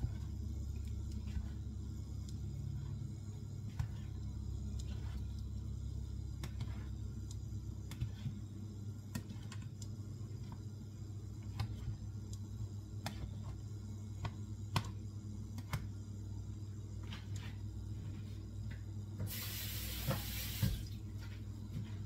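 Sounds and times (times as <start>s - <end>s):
steady low hum: 0.0s - 22.0s
tap water running: 19.2s - 21.0s.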